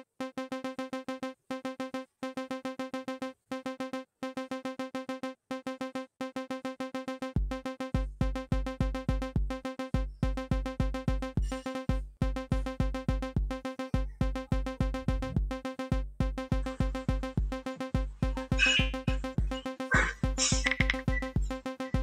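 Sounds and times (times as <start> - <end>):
pitched electronic sample notes: 11.1 - 22.0
bass drum hits: 14.8 - 15.6.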